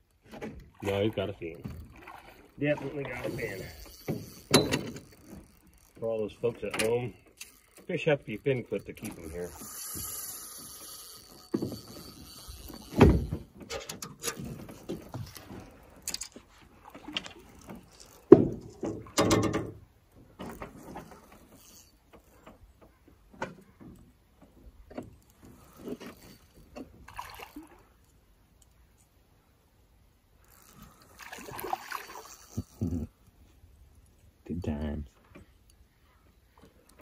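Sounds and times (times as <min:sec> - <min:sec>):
knocks and thumps in a boat: 0:00.2 - 0:07.1, 0:12.7 - 0:15.7, 0:16.8 - 0:27.4.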